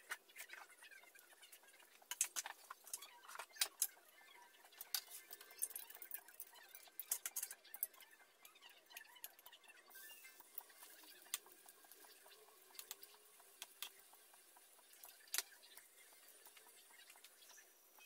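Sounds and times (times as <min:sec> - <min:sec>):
hot oil crackling and popping: 0:00.0 - 0:18.0
batter hissing in oil: 0:09.9 - 0:18.0.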